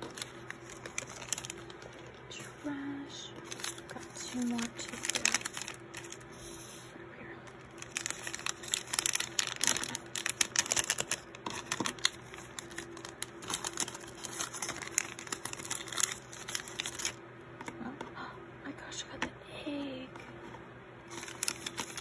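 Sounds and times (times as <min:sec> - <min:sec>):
plastic foil pouch crinkling: 0:00.0 - 0:02.4, 0:03.3 - 0:06.3, 0:07.5 - 0:17.2, 0:21.1 - 0:22.0.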